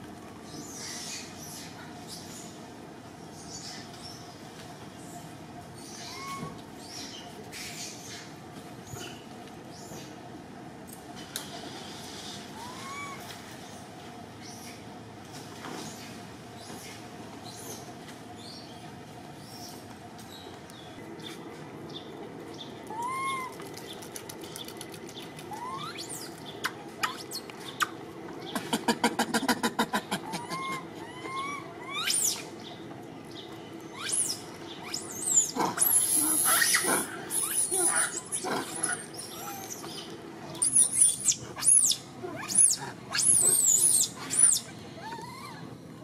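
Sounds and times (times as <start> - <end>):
baby monkey whimpering coos: 6.1 - 6.6, 12.6 - 13.2, 22.9 - 23.6, 25.5 - 26.0, 28.8 - 32.4, 34.0 - 39.9, 40.6 - 45.7.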